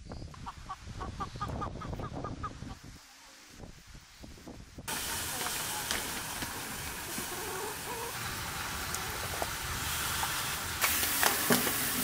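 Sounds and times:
steady hiss: 0:02.7 - 0:12.0.

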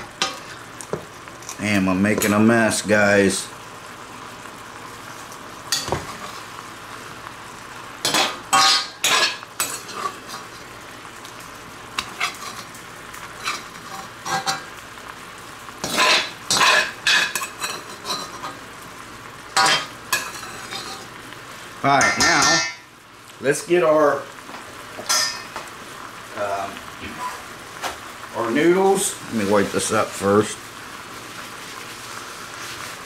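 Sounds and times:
gravy sizzling: 0:00.0 - 0:33.0
metal spoon scraping a wok: 0:15.8 - 0:18.6, 0:19.6 - 0:21.1.

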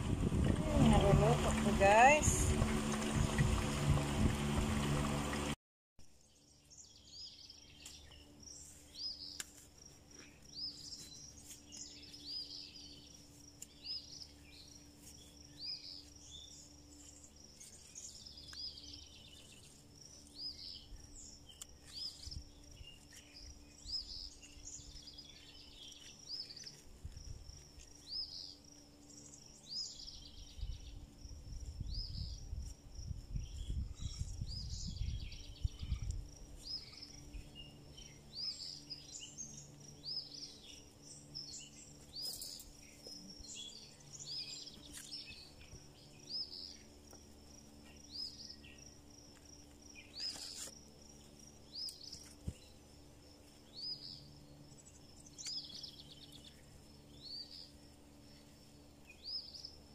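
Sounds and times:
low rumble: 0:00.0 - 0:05.6
high insect buzz: 0:06.7 - 0:59.9
bird chirping: 0:33.5 - 0:47.0, 0:53.7 - 0:59.8.

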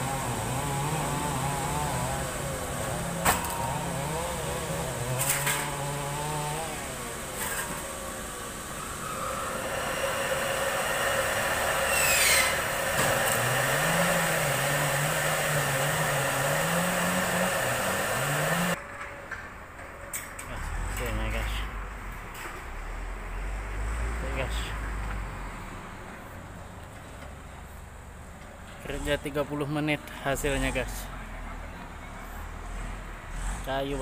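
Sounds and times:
band saw running: 0:00.0 - 0:18.8.

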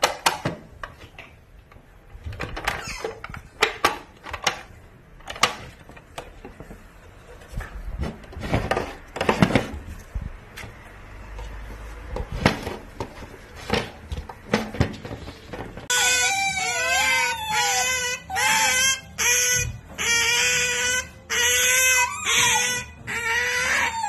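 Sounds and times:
plastic toy clicking and knocking: 0:00.0 - 0:06.6.

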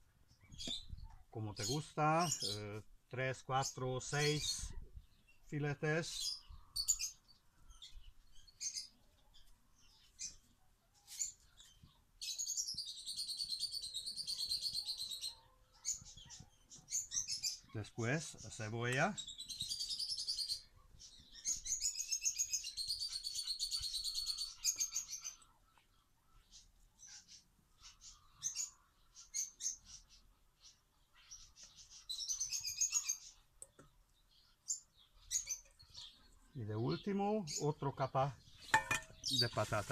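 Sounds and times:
bird trilling song: 0:00.0 - 0:39.9
songbirds chirping: 0:00.0 - 0:39.9.

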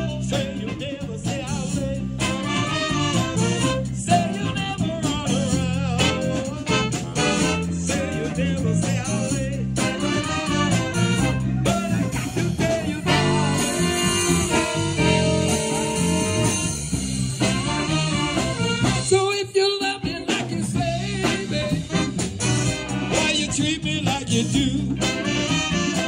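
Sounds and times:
person singing: 0:00.0 - 0:16.5, 0:19.0 - 0:22.2
congas and drums: 0:00.0 - 0:26.0
saxophones playing: 0:02.2 - 0:05.0, 0:05.8 - 0:08.6, 0:09.8 - 0:19.2, 0:21.3 - 0:23.6, 0:25.0 - 0:26.0.

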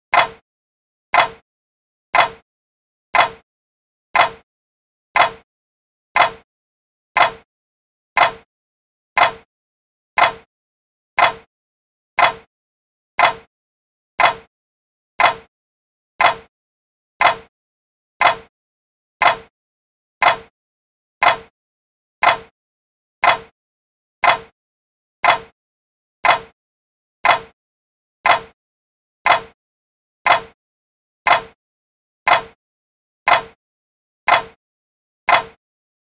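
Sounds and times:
clock ticking: 0:00.1 - 0:00.4, 0:01.2 - 0:01.4, 0:02.2 - 0:02.4, 0:03.2 - 0:03.4, 0:04.2 - 0:04.4, 0:05.2 - 0:05.4, 0:06.2 - 0:06.4, 0:07.2 - 0:07.5, 0:08.2 - 0:08.5, 0:09.2 - 0:09.5, 0:10.2 - 0:10.5, 0:11.2 - 0:11.5, 0:12.2 - 0:12.5, 0:13.2 - 0:13.5, 0:14.2 - 0:14.5, 0:15.2 - 0:15.5, 0:16.2 - 0:16.5, 0:17.2 - 0:17.5, 0:18.2 - 0:18.5, 0:19.2 - 0:19.5, 0:20.2 - 0:20.5, 0:21.2 - 0:21.5, 0:22.2 - 0:22.5, 0:23.2 - 0:23.5, 0:24.2 - 0:24.5, 0:25.2 - 0:25.6, 0:26.2 - 0:26.6, 0:27.2 - 0:27.6, 0:28.2 - 0:28.6, 0:29.2 - 0:29.6, 0:30.3 - 0:30.6, 0:31.3 - 0:31.6, 0:32.3 - 0:32.6, 0:33.3 - 0:33.6, 0:34.3 - 0:34.6, 0:35.3 - 0:35.6.

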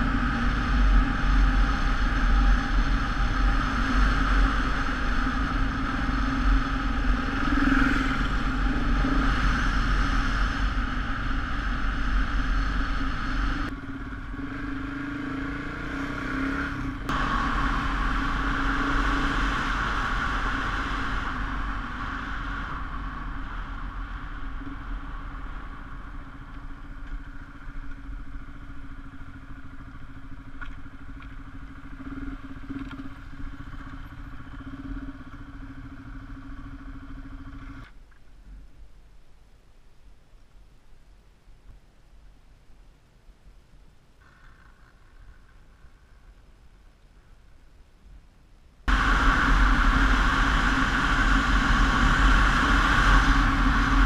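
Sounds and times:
motorcycle engine running: 0:00.0 - 0:38.1, 0:48.9 - 0:54.0
road noise: 0:00.0 - 0:54.0
wind rumble: 0:00.0 - 0:54.0.

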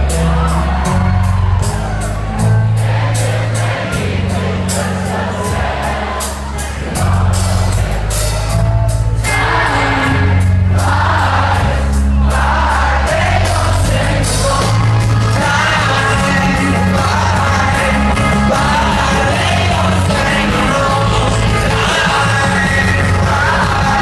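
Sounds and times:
live rock band: 0:00.0 - 0:24.0
person singing lead vocal: 0:09.2 - 0:24.0.

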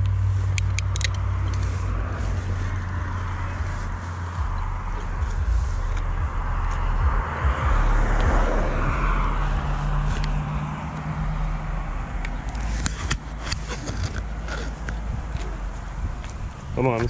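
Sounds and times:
sharp clicks: 0:00.0 - 0:01.7
motor vehicle passing: 0:00.0 - 0:17.0
wind rumbling on camera: 0:00.0 - 0:17.0.

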